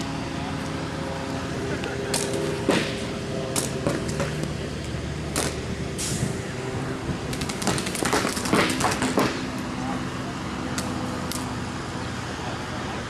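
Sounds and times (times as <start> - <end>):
steady low hum: 0.0 - 13.0
paintball markers firing: 7.3 - 9.6.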